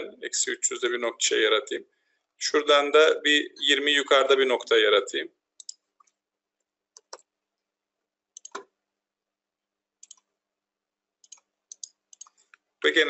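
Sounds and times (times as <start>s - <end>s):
computer mouse clicks: 5.6s - 6.2s, 7.0s - 7.3s, 8.4s - 8.7s, 10.0s - 10.3s, 11.2s - 12.7s.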